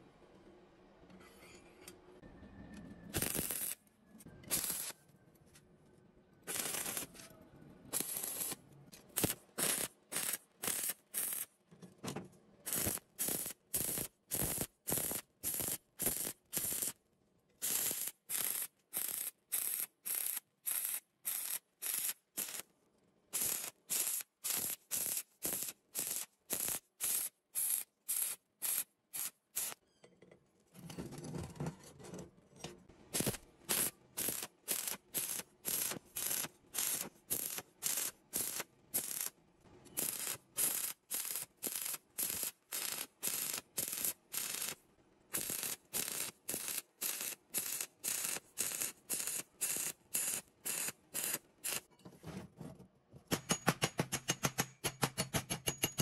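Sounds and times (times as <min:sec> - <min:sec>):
stick welding arc bursts: 0:03.1 - 0:03.8, 0:04.5 - 0:05.0, 0:06.5 - 0:07.1, 0:07.9 - 0:11.5, 0:12.6 - 0:17.0, 0:17.6 - 0:22.6, 0:23.3 - 0:29.8, 0:33.1 - 0:39.4, 0:40.0 - 0:51.9.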